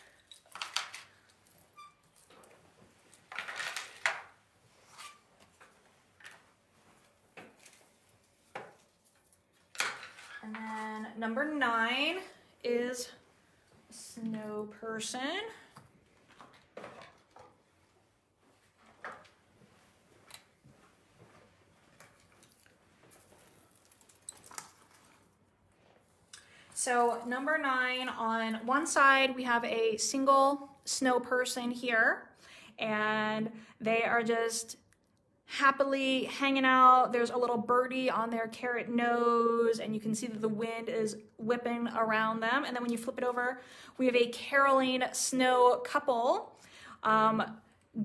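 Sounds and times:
rustling with light clinks: 0:00.0 - 0:04.0, 0:06.2 - 0:11.0, 0:19.7 - 0:26.0.

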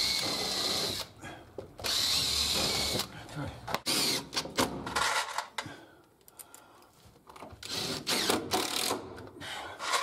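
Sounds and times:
cordless drill driving a screw: 0:00.0 - 0:01.1, 0:01.8 - 0:03.1, 0:07.6 - 0:08.9.

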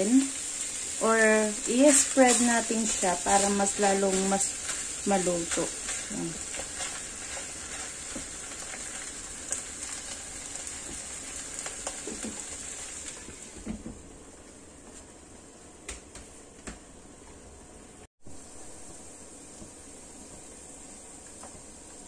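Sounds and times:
meat sizzling in a wok: 0:00.0 - 0:13.7, 0:18.2 - 0:22.0
spatula scraping and tapping: 0:05.5 - 0:09.0.

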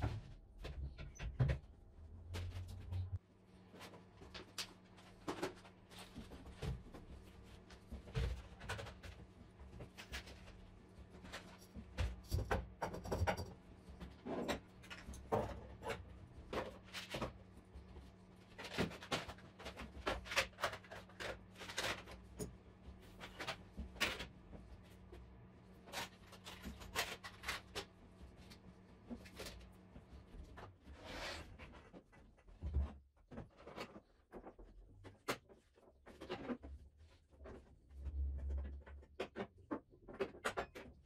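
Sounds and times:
jars and boxes clattering on shelves: 0:11.2 - 0:17.5.

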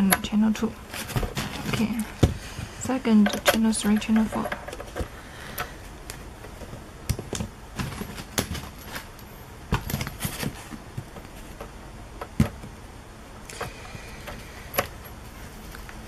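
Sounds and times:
cables knocking against unit: 0:03.1 - 0:05.7.

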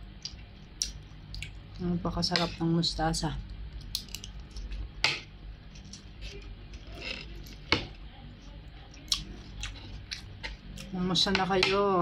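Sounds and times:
cutlery scraping a plate: 0:05.8 - 0:07.9.

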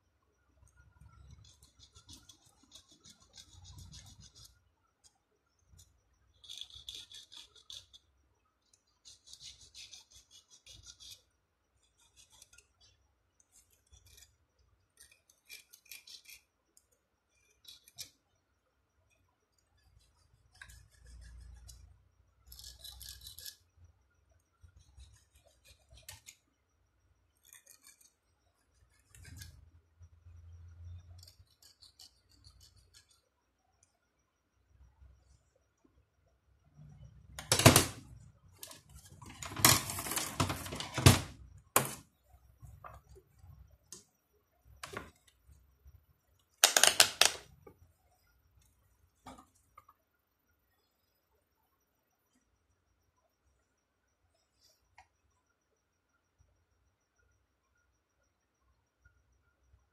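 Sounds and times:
hand tool scraping wire: 0:15.0 - 0:16.5.

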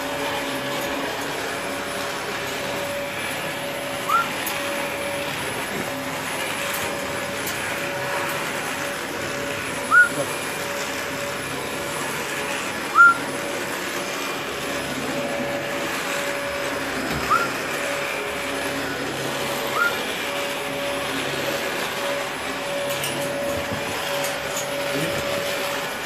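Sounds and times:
parrot whistling: 0:04.1 - 0:04.3, 0:09.9 - 0:10.2, 0:12.9 - 0:13.3, 0:17.3 - 0:17.6, 0:19.7 - 0:20.0.

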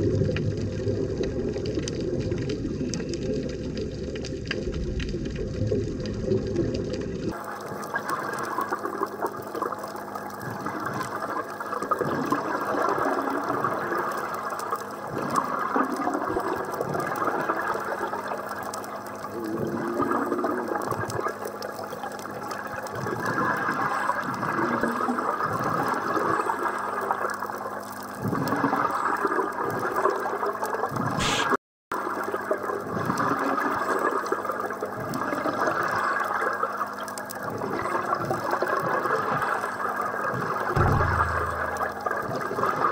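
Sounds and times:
underwater regulator bubbles: 0:19.2 - 0:21.4, 0:40.8 - 0:42.6.

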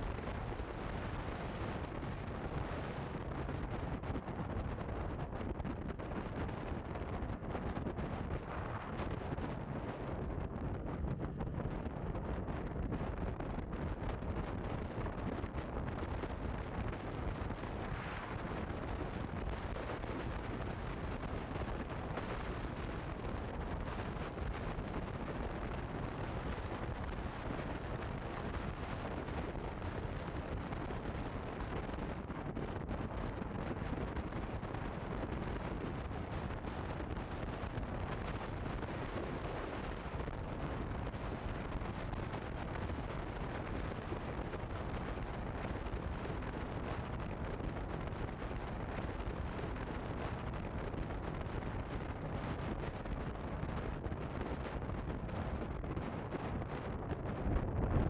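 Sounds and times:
wind rumble on microphone: 0:00.0 - 0:58.0.

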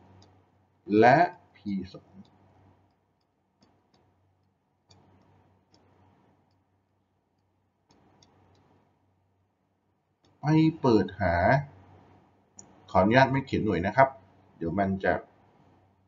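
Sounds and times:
stylus tapping on tablet screen: 0:02.0 - 0:08.8.

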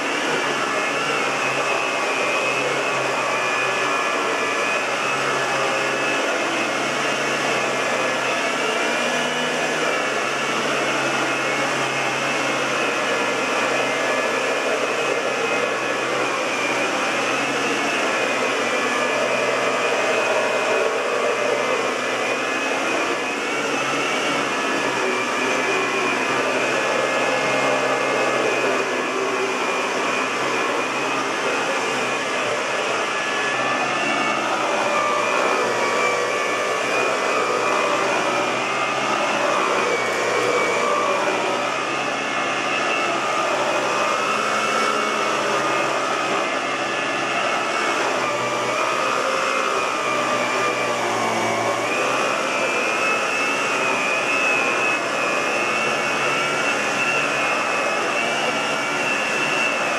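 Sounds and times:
vacuum cleaner running: 0:00.0 - 0:59.9
vacuum nozzle on carpet: 0:00.0 - 0:59.9.

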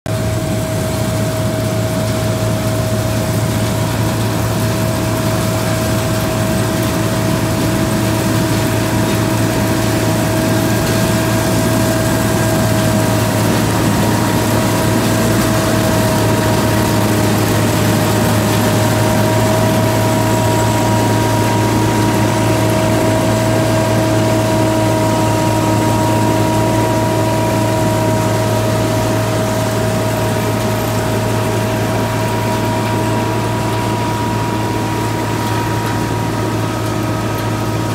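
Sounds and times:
low engine drone: 0:00.1 - 0:37.9
machinery whine: 0:00.1 - 0:37.9.

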